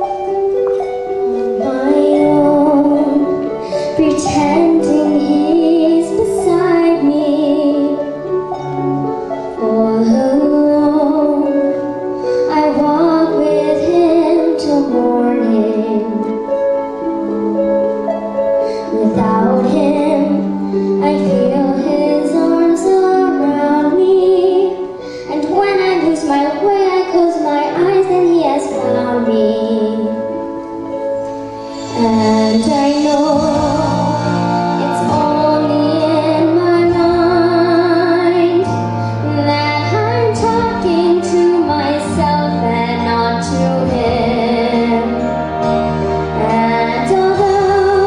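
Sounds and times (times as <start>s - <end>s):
girl singing ballad: 0.0s - 17.4s, 18.6s - 48.0s
instrumental accompaniment: 0.0s - 48.0s.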